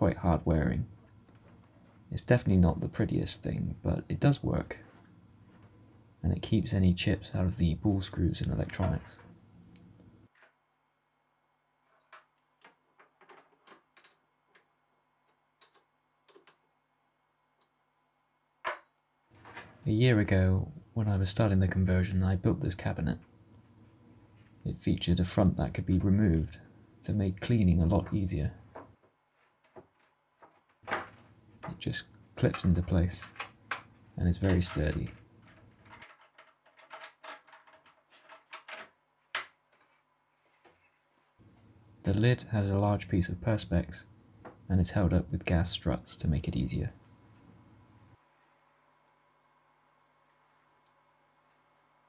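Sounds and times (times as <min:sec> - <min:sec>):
faint metal clicks and taps: 0:11.9 - 0:16.6.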